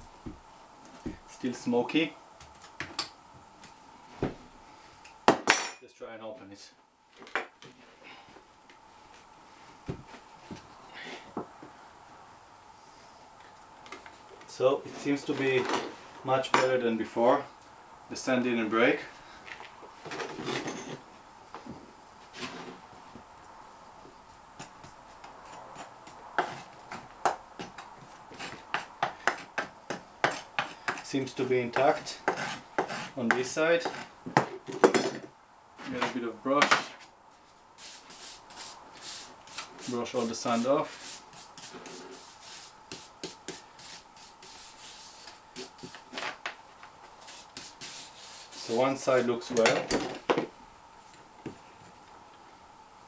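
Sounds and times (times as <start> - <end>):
hand brush sweeping sand: 37.8 - 45.9, 47.2 - 49.4.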